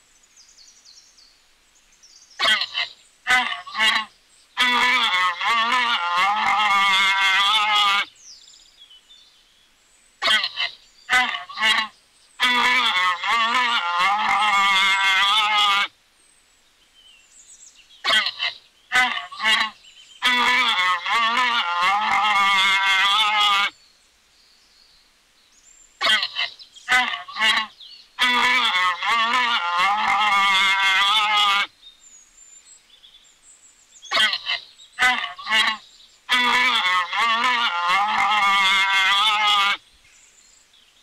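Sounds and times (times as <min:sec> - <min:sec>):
alpaca honking braying call: 0:02.4 - 0:08.1, 0:10.2 - 0:15.9, 0:18.0 - 0:23.7, 0:26.0 - 0:31.7, 0:34.1 - 0:39.8.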